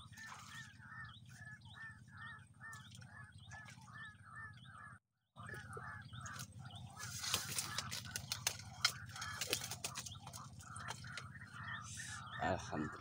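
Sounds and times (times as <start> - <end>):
fish splashing in water: 6.3 - 11.4.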